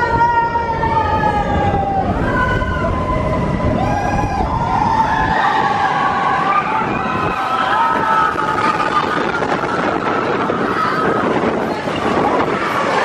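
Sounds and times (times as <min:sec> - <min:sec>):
roller coaster train rumble: 0:00.0 - 0:13.0
riders screaming: 0:01.6 - 0:11.5.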